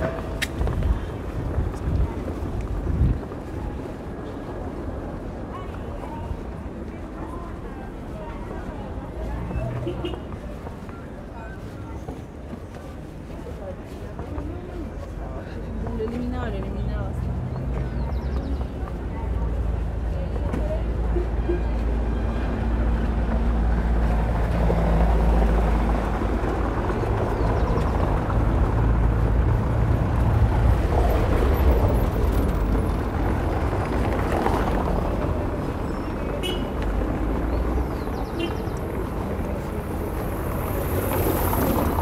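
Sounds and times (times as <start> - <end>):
outdoor noise: 0.0 - 42.0
vehicle engine humming: 15.6 - 42.0.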